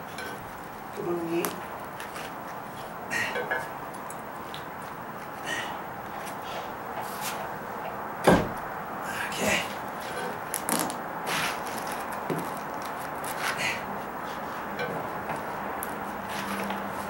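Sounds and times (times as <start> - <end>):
heavy thump: 8.2 - 8.6.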